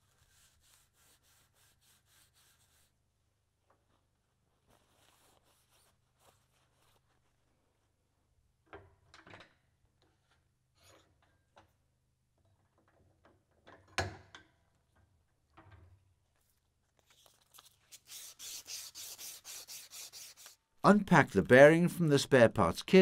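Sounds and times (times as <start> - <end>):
rubbing strokes on metal shaft: 17.9 - 20.6.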